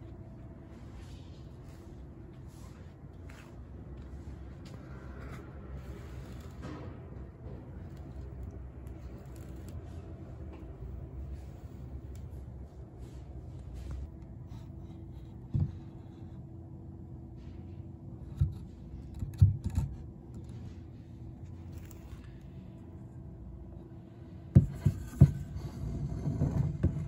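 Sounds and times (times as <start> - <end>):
dull knocks and scrapes: 13.8 - 16.3, 24.5 - 27.0.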